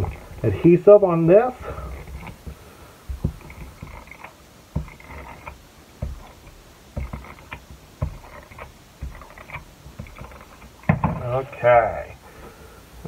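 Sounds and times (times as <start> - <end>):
tape runner strokes on cardstock: 1.5 - 10.9.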